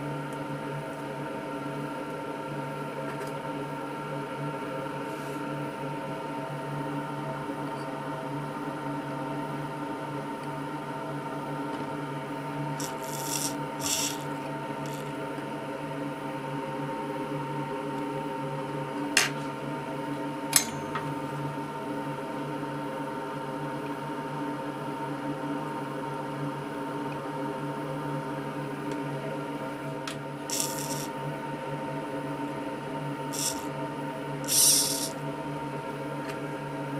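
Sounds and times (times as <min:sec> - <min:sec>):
electrical hum: 0:06.4 - 0:16.3, 0:28.3 - 0:36.8
tweezers scraping circuit board: 0:12.8 - 0:15.1, 0:30.5 - 0:31.1, 0:33.4 - 0:33.7, 0:34.5 - 0:35.1.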